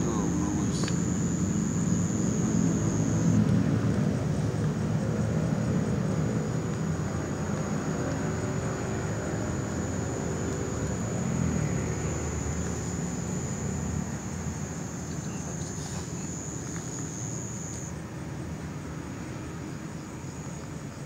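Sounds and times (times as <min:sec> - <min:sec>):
high-pitched whine: 0:00.0 - 0:03.8, 0:06.1 - 0:18.0
low mechanical drone: 0:00.0 - 0:18.0.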